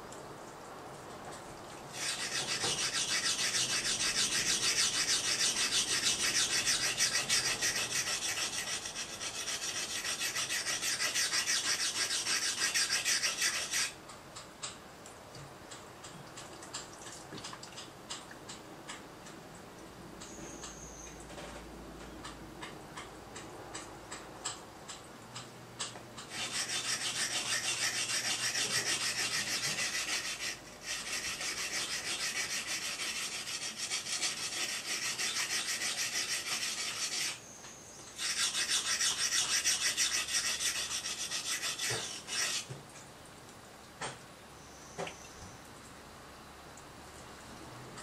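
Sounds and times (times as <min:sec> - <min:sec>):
blade scraping on a whetstone: 0:01.9 - 0:14.0, 0:26.3 - 0:37.4, 0:38.2 - 0:42.8.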